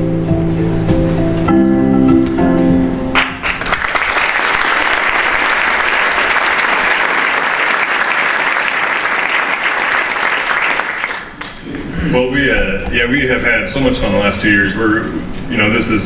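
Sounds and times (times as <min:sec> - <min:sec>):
background music: 0:00.0 - 0:03.6
audience applauding: 0:03.2 - 0:11.6.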